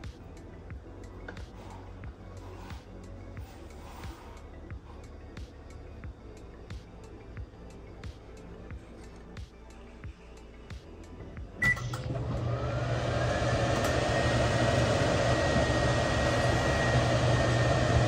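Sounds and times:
microwave beep: 11.6s - 12.4s
microwave humming: 11.6s - 18.0s.

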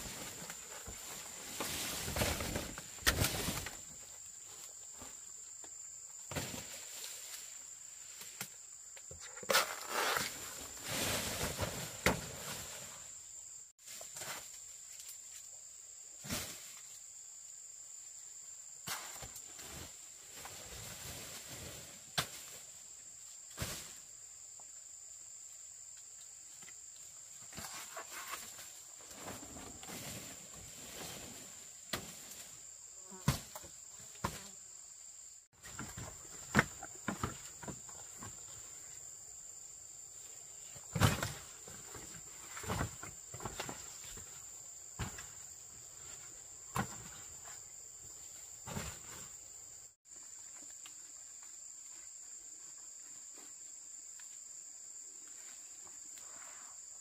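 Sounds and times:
rustling through undergrowth: 0.0s - 5.4s, 27.3s - 33.6s.

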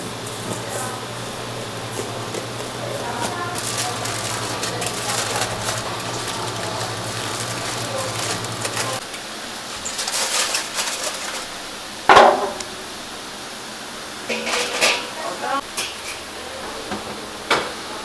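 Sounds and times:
aluminium foil crinkling: 1.8s - 9.1s, 9.7s - 11.6s.

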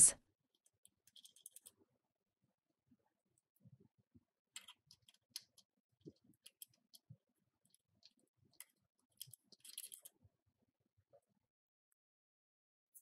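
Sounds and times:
small metal clicks: 0.5s - 1.8s, 4.5s - 10.2s.

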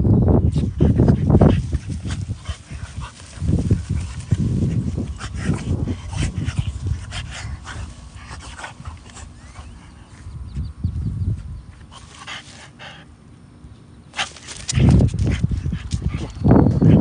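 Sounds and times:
grass rustling: 0.3s - 13.2s, 14.1s - 16.8s
dog breathing: 0.6s - 10.3s.

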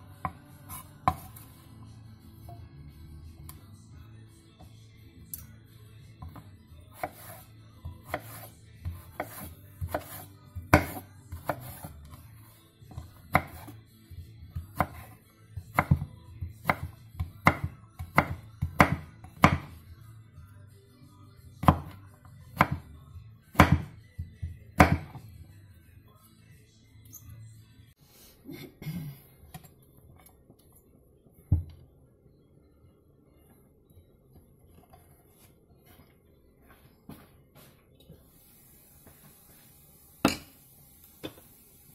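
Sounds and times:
knife chopping on wooden board: 7.0s - 11.9s, 12.9s - 13.7s, 15.7s - 19.7s, 21.6s - 22.0s, 22.6s - 22.8s, 23.6s - 25.2s.

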